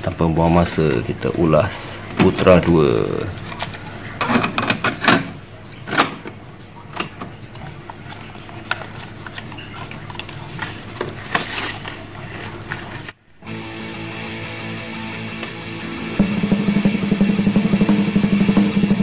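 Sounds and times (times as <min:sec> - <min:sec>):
paper card rustling: 0:02.2 - 0:04.2, 0:07.5 - 0:13.2.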